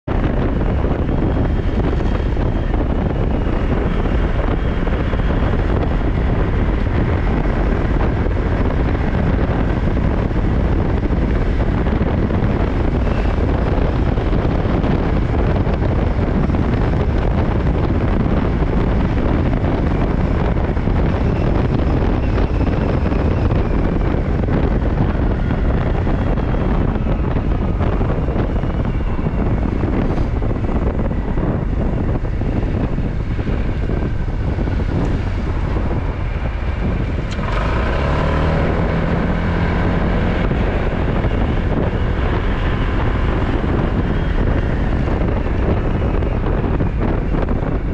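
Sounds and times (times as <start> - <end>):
motorcycle engine whine: 0.0 - 47.9
wind rush on microphone: 0.0 - 47.9.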